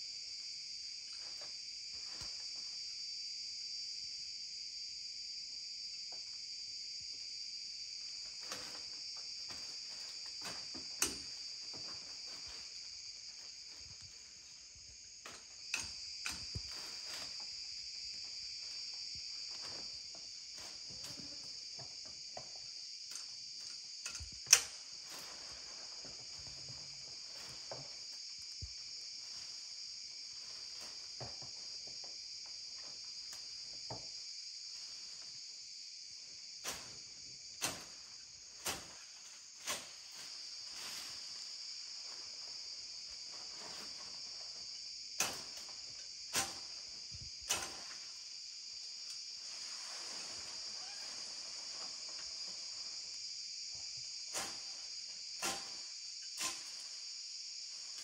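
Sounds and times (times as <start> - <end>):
insects chirping: 0.0 - 58.0
plants rustling: 8.4 - 15.8, 16.4 - 21.5, 24.9 - 28.3, 38.6 - 44.8, 49.3 - 53.1.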